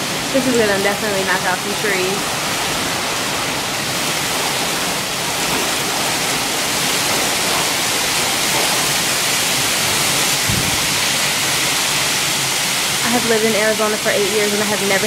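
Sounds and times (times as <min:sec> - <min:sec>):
torrential rain: 0:00.0 - 0:15.0
low thump: 0:10.4 - 0:11.0.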